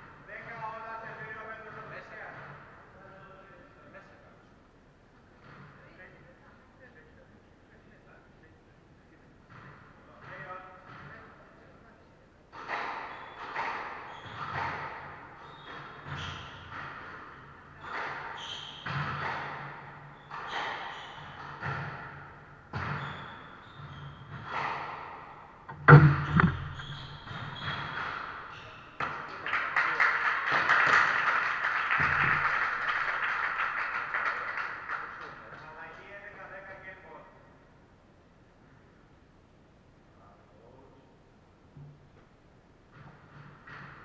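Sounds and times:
crowd clapping and voices: 0:29.0 - 0:36.3.

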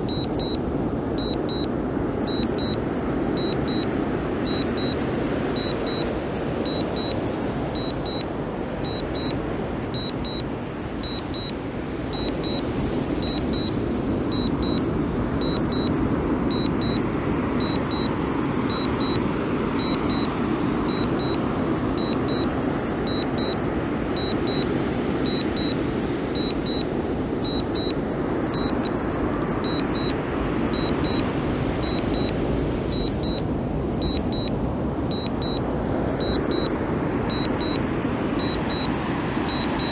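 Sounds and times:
high double beeps: 0:00.0 - 0:00.6, 0:01.2 - 0:01.7, 0:02.3 - 0:02.8, 0:03.4 - 0:03.9, 0:04.5 - 0:07.2, 0:07.8 - 0:08.2, 0:08.8 - 0:09.4, 0:10.0 - 0:10.4, 0:11.0 - 0:17.0, 0:17.6 - 0:21.4, 0:22.0 - 0:23.6, 0:24.2 - 0:25.8, 0:26.4 - 0:33.4, 0:34.0 - 0:34.5, 0:35.1 - 0:35.6, 0:36.2 - 0:37.8, 0:38.4 - 0:39.9
steady rushing noise: 0:00.0 - 0:39.9.

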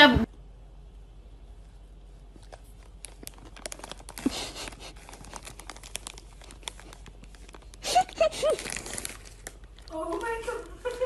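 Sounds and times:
plastic chip bag crinkling: 0:02.2 - 0:11.0.

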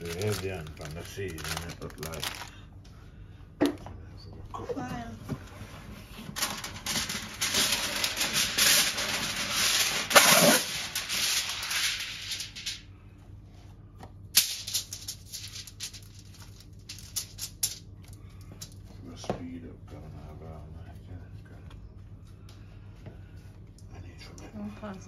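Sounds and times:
aluminium foil crinkling: 0:00.0 - 0:02.6, 0:06.4 - 0:12.8, 0:14.4 - 0:18.8
foil sheet crackles and clicks: 0:00.0 - 0:02.6, 0:06.4 - 0:12.8, 0:14.4 - 0:17.8.

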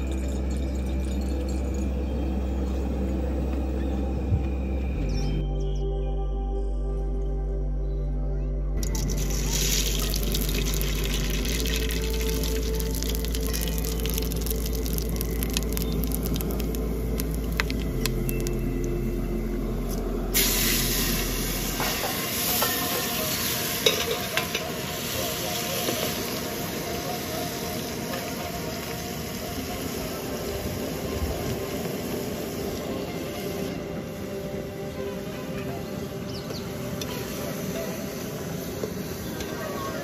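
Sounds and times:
water boiling in pot: 0:08.8 - 0:18.8, 0:20.3 - 0:33.8.

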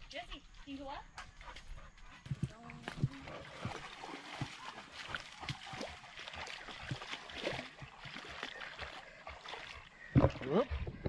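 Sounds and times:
footsteps splashing in creek: 0:00.8 - 0:11.0
water trickling: 0:02.5 - 0:11.0.

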